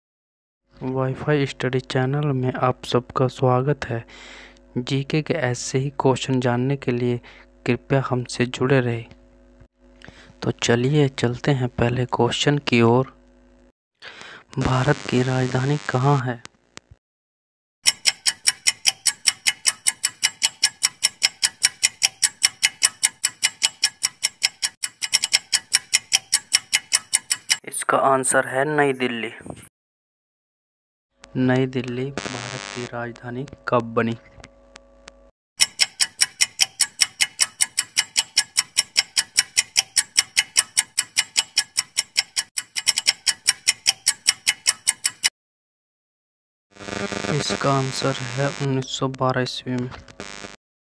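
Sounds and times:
clock ticking: 0:17.8 - 0:27.6, 0:35.6 - 0:45.3.

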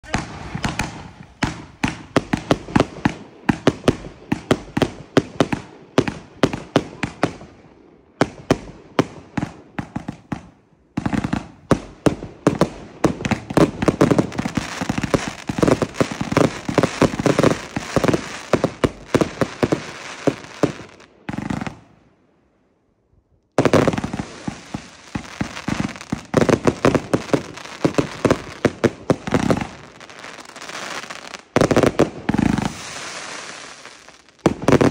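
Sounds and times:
firework crackle: 0:11.0 - 0:21.9, 0:23.6 - 0:34.9.

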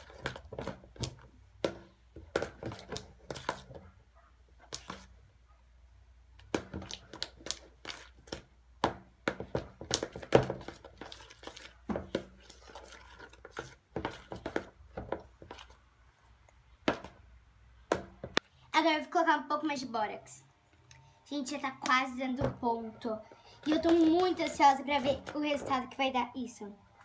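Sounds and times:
spatula stirring wet slime: 0:00.0 - 0:05.3, 0:06.3 - 0:18.4, 0:23.2 - 0:26.0.

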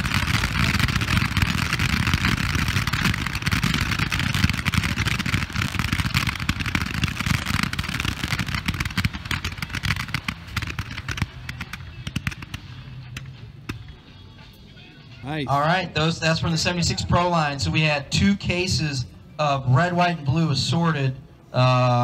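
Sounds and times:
fireworks rattling and bursting: 0:00.0 - 0:14.3.

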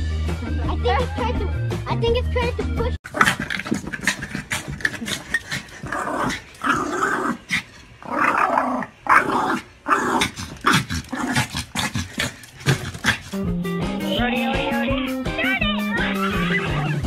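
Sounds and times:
small dog growling: 0:03.1 - 0:13.5.

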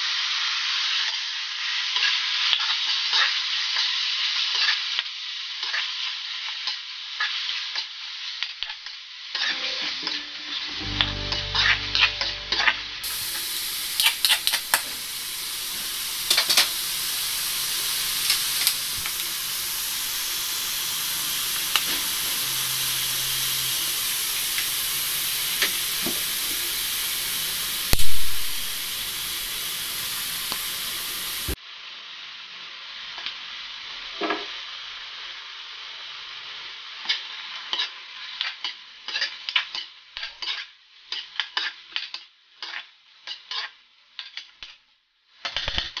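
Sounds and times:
meat sizzling in a wok: 0:00.0 - 0:46.0.

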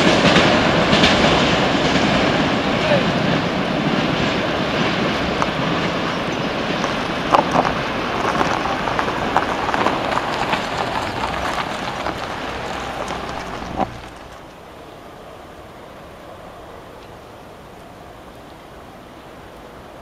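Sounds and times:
wheels clicking over rail joints: 0:00.0 - 0:14.6
train wheels rumbling on rails: 0:00.0 - 0:15.5.

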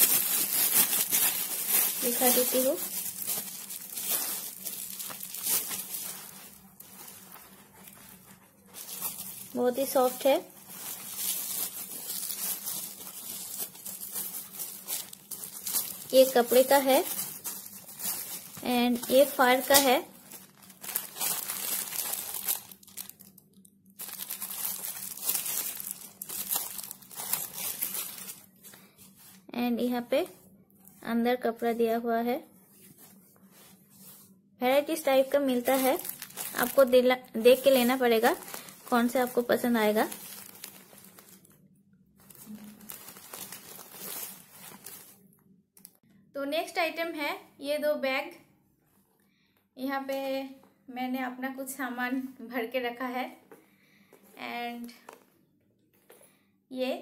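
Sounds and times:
plastic wrapping crinkling: 0:00.0 - 0:29.4, 0:35.0 - 0:46.0.

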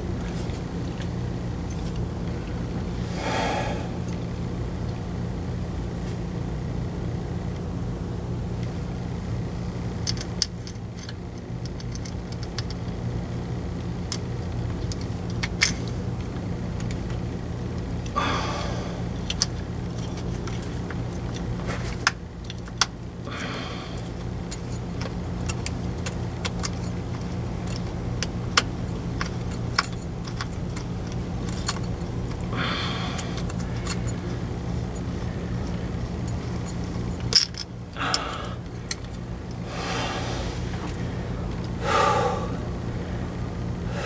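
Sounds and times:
steady low hum: 0:00.0 - 0:44.0
light metal clicks and taps: 0:10.0 - 0:13.0, 0:19.2 - 0:23.0, 0:24.0 - 0:32.5.

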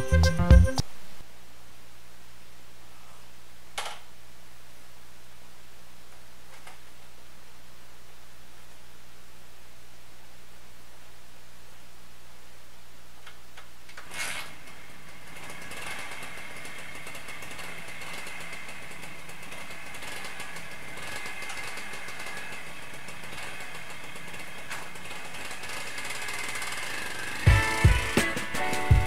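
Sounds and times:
two-stroke engine idling: 0:14.5 - 0:29.0.

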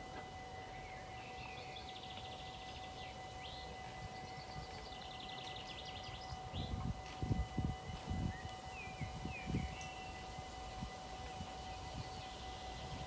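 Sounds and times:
level crossing warning bell: 0:00.0 - 0:13.0
songbird trilling: 0:00.7 - 0:06.8
low wind rumble: 0:00.8 - 0:13.0.

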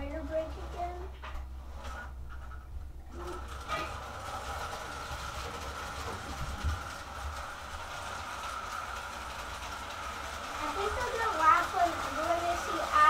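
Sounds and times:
wheels rumbling on rails: 0:00.0 - 0:13.0
toy train motor whine: 0:03.1 - 0:13.0.

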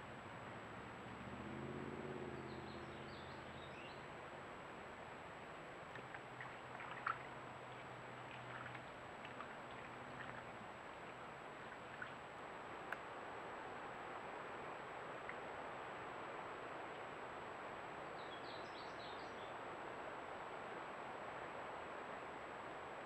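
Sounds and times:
faint clicks: 0:12.9 - 0:13.1.

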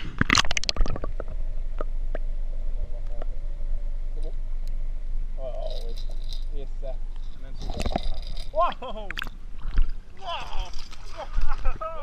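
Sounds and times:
muffled underwater rumble: 0:00.0 - 0:05.4
faint steady hum: 0:00.0 - 0:12.0.

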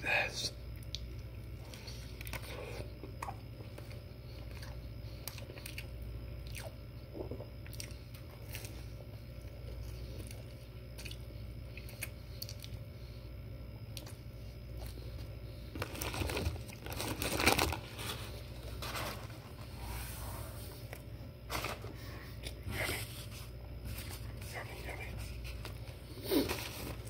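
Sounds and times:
faint chewing: 0:00.7 - 0:13.2, 0:13.8 - 0:19.0
paper wrapper crumpling: 0:15.7 - 0:19.6.

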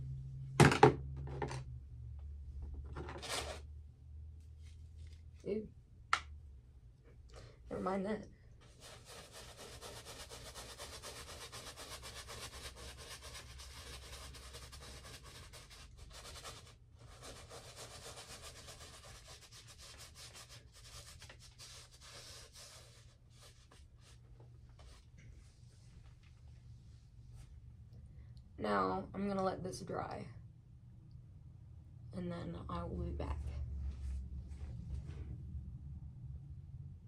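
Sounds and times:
paintbrush scrubbing on canvas: 0:08.6 - 0:25.0.

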